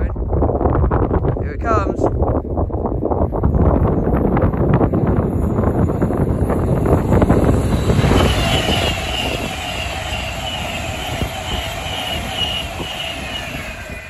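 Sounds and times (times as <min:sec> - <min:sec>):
electric train passing at speed: 0:02.8 - 0:14.0
high whine: 0:03.1 - 0:14.0.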